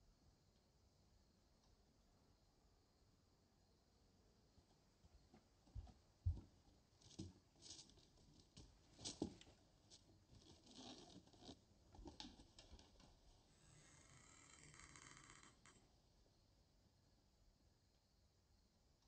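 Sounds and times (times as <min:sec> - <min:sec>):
soft footsteps: 0:05.0 - 0:12.3
faint scuffing: 0:05.1 - 0:10.1.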